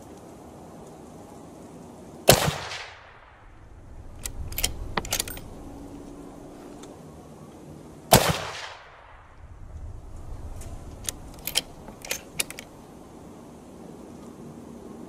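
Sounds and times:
rifle shot: 2.3s - 5.7s, 8.1s - 9.4s
rifle action metallic clicks: 2.3s - 6.9s, 10.2s - 12.8s.

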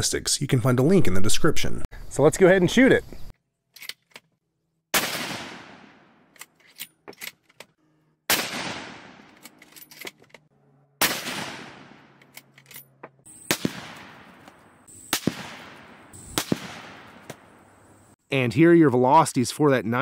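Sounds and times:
rifle shots echoing: 4.9s - 6.2s, 8.3s - 9.4s, 11.0s - 12.2s, 13.3s - 17.6s.

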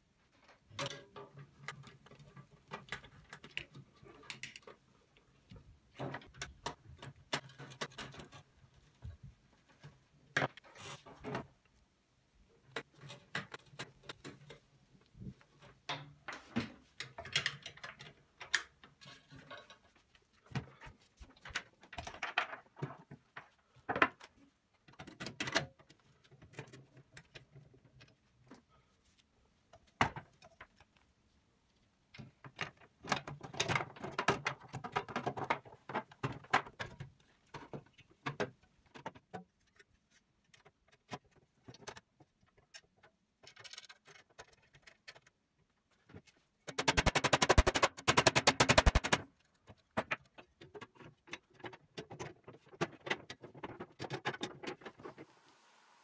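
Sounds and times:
sheet metal parts clicking and rattling: 5.9s - 8.8s, 15.6s - 22.8s, 32.2s - 45.4s, 46.6s - 55.0s.

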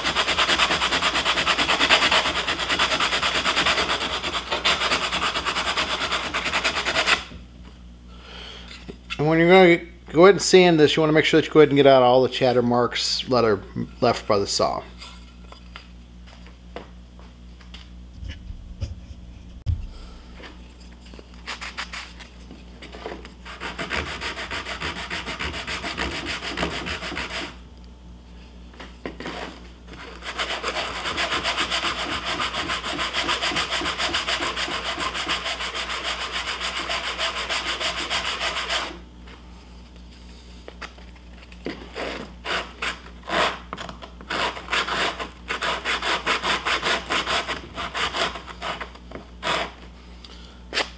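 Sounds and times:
wood rasping on sanding sponge: 0.0s - 7.3s, 23.4s - 27.6s, 30.1s - 39.0s.

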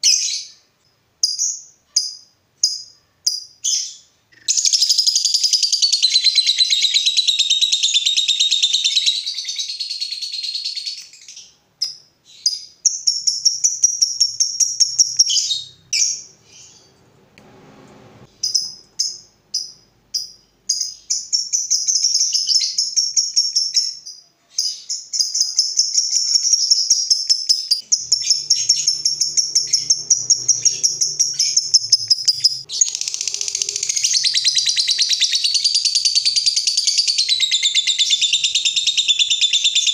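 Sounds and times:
lovebirds chattering trill: 27.6s - 39.9s.

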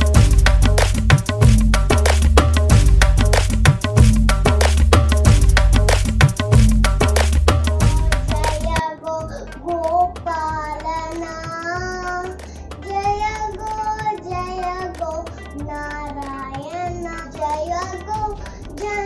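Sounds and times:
girl singing: 7.8s - 19.0s.

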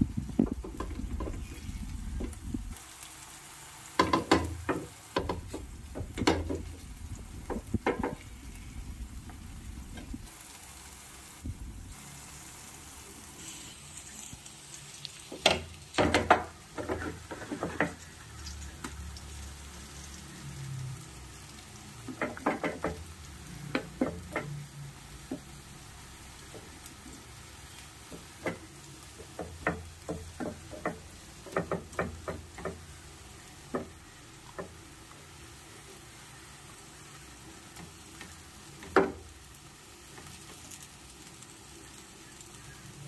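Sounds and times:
slices sizzling in oil: 0.0s - 43.0s
metal spatula scraping pan: 16.7s - 18.1s.

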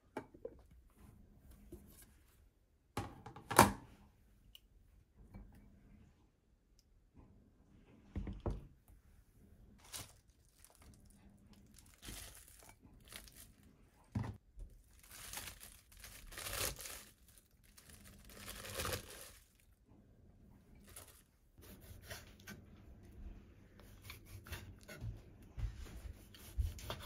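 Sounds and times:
cabbage leaves rustling: 9.8s - 11.0s, 11.7s - 13.7s, 14.8s - 19.6s, 20.8s - 21.3s.

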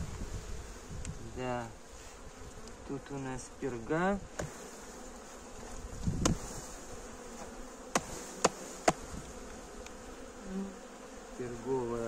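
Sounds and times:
honeybees buzzing: 0.0s - 12.0s
dull thump: 6.2s - 6.5s.

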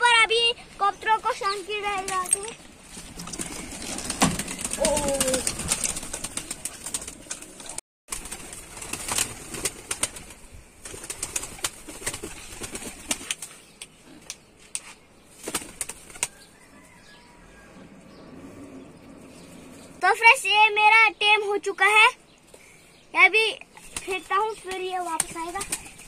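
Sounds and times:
pigeons flapping wings: 1.3s - 13.6s, 15.4s - 16.4s, 23.8s - 26.0s
pigeon cooing: 4.4s - 5.7s.

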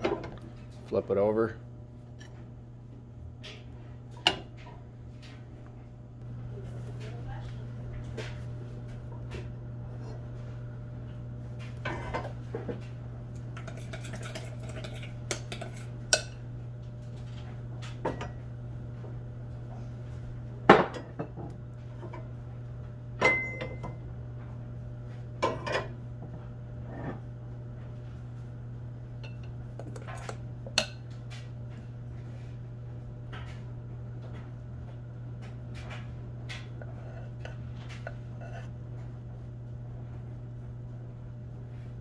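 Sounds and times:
steady low hum: 0.0s - 42.0s
metal clanks and scrapes: 11.8s - 12.3s, 36.6s - 38.7s.

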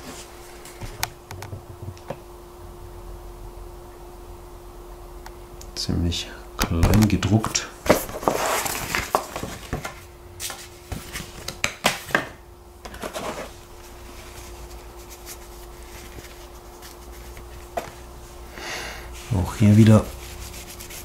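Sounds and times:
paper pages rustling: 6.9s - 11.6s, 12.9s - 18.0s.

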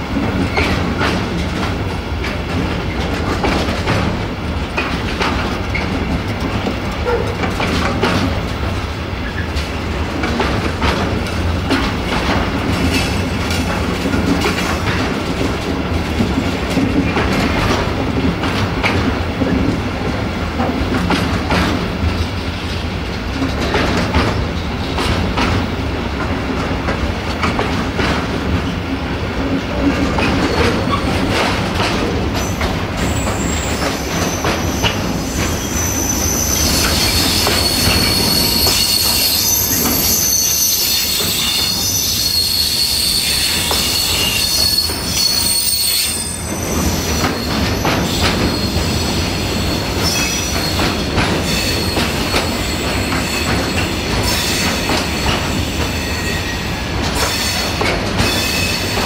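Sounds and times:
train wheels clattering over rail joints: 0.0s - 59.0s
high-pitched metallic squeal: 32.4s - 56.7s.

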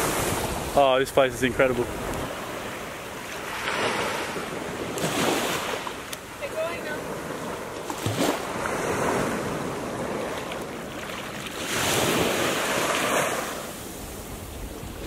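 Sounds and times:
small waves lapping on beach: 0.0s - 15.0s.

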